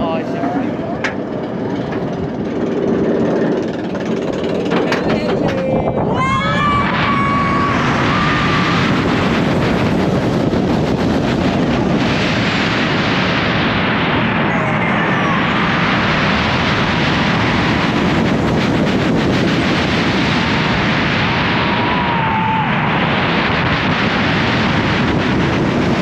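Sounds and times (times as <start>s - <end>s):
roller coaster train on track: 0.0s - 26.0s
wind blasting microphone: 0.0s - 26.0s.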